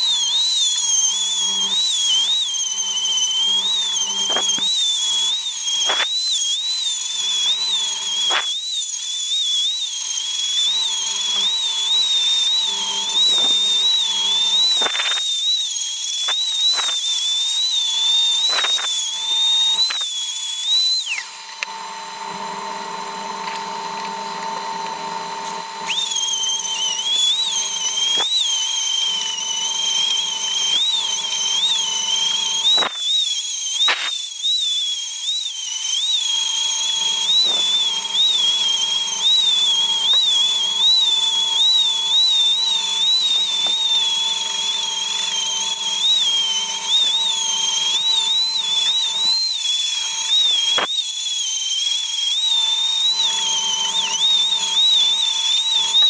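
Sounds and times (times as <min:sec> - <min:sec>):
rotary tool whining: 0:00.0 - 0:56.0.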